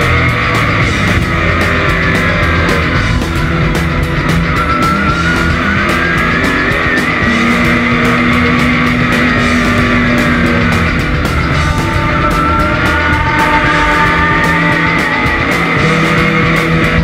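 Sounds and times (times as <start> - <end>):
music with drum beat: 0.0 - 17.0
race car engine running: 0.0 - 17.0
long held note: 4.6 - 16.0.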